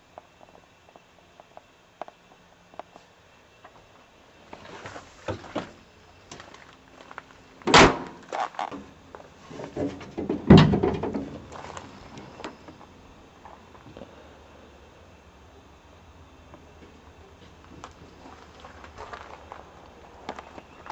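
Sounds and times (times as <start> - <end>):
heavy truck door thunks: 7.7 - 8.2, 9.7 - 11.6
handling knocks: 9.6 - 12.8.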